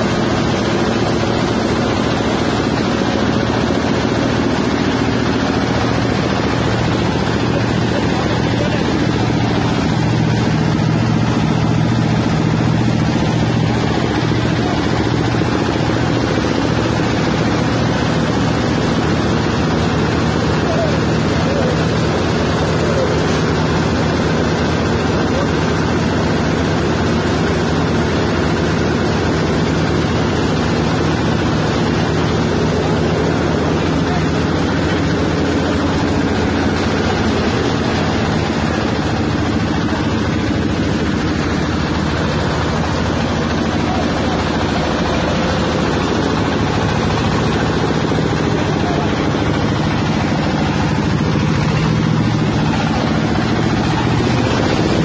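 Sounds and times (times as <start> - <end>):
grinding machine droning: 0.0 - 55.0.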